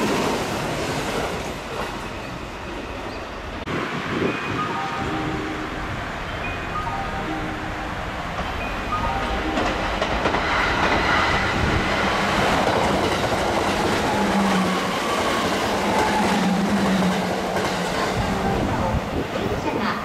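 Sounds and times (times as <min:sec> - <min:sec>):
low hum of train: 0:00.0 - 0:20.0
train wheels clattering on rails: 0:08.3 - 0:20.0.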